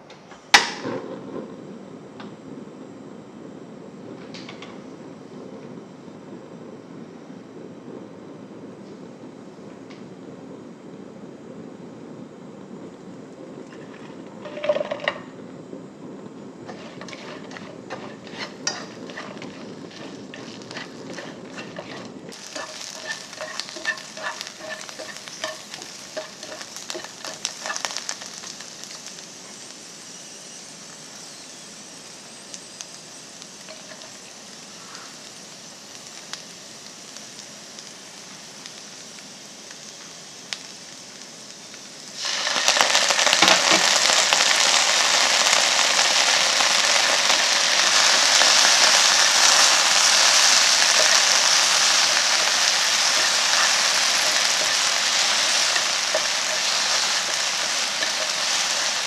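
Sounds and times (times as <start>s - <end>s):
okra sizzling in hot oil: 0.0s - 59.0s
oil crackling pops: 32.5s - 59.0s.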